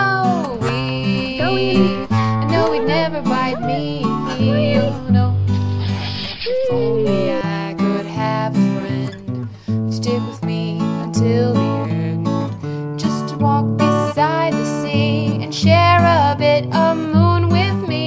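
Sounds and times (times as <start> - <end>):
person singing: 0.0 - 9.2
strummed acoustic guitar: 0.0 - 18.0.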